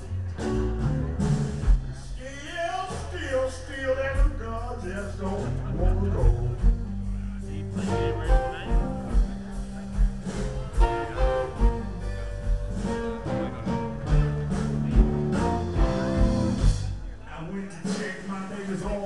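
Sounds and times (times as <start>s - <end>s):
bass line: 0.0s - 19.0s
kick-drum beat: 0.4s - 2.2s, 5.7s - 7.1s, 7.7s - 17.2s.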